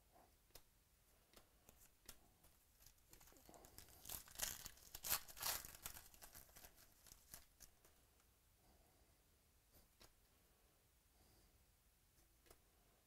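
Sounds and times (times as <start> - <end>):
foil wrapper tearing and crinkling: 2.8 - 7.8.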